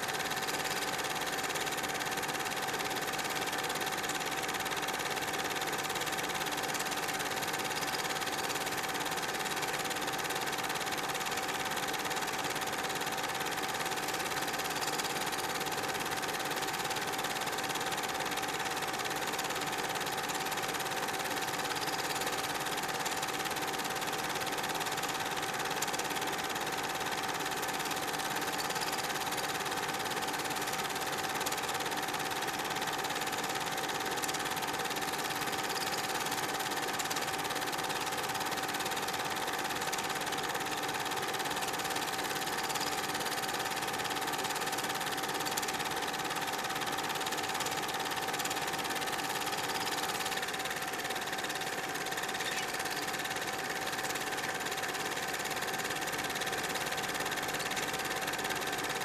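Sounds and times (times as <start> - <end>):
film projector running: 0.0 - 59.0.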